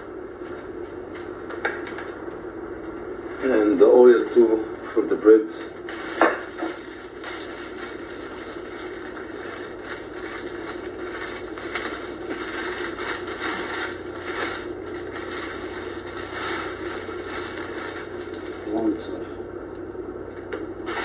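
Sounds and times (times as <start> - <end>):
steady low hum: 0.0 - 21.0
plastic bag crinkling: 5.9 - 18.8.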